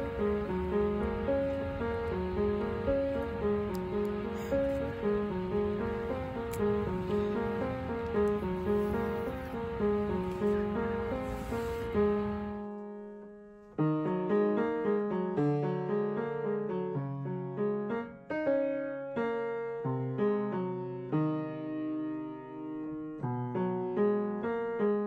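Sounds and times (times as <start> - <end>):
slow solo piano piece: 0.0 - 25.0.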